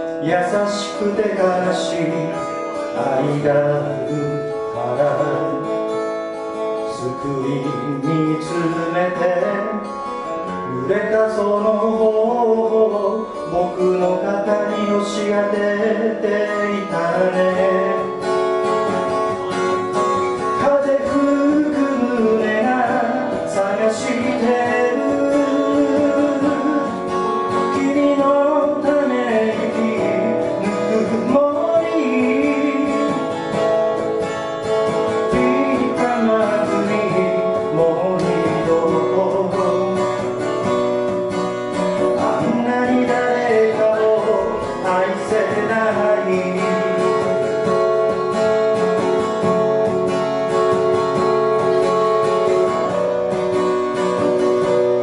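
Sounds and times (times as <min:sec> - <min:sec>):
acoustic guitar playing chords: 0:00.0 - 0:55.0
wordless melody line: 0:00.0 - 0:55.0.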